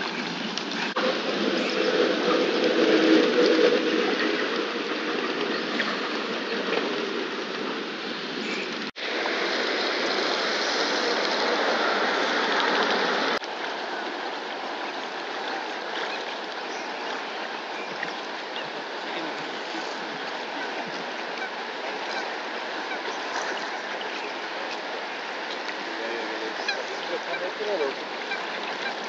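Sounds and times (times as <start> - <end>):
lapping water: 8.5 - 29.0.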